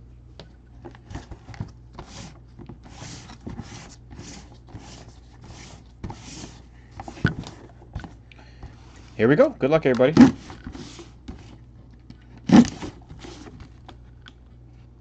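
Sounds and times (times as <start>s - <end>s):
cardboard box scraping swishes: 2.0s - 7.2s.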